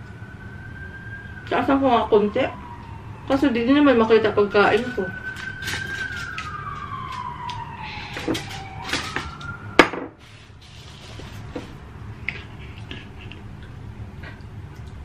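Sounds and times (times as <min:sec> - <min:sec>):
siren wailing: 0:00.0 - 0:10.6.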